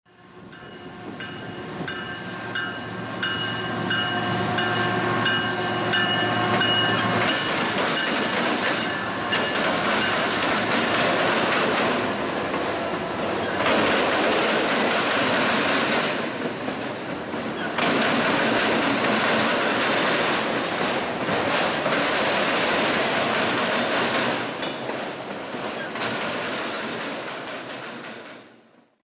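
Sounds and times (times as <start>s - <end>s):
freight train wheels rumbling: 0.1s - 28.7s.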